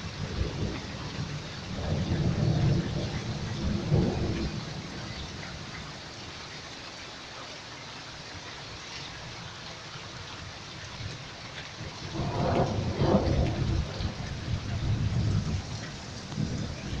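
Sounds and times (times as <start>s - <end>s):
heavy rain: 0.0s - 17.0s
thunder clap rumbling: 0.2s - 4.8s, 11.8s - 17.0s.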